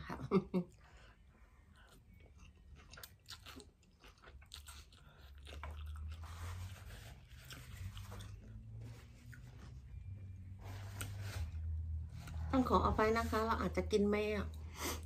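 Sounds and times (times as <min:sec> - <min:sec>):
noodles slurped and chewed: 0:01.7 - 0:09.4
low hum: 0:06.0 - 0:14.8.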